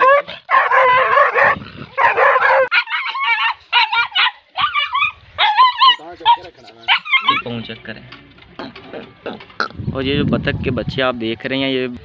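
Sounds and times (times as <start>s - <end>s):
dogs barking: 0.0s - 7.6s.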